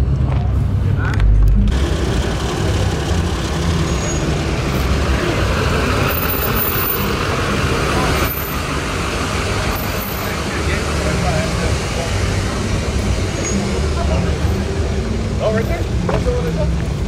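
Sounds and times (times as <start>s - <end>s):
pickup truck engine running: 0.0s - 13.4s.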